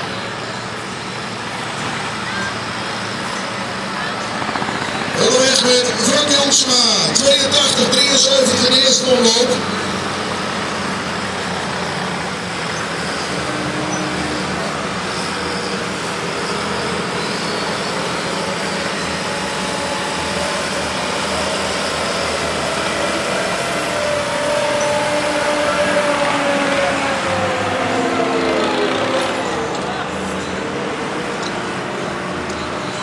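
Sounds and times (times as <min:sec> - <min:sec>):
tractor engine loud drone: 0:00.0 - 0:33.0.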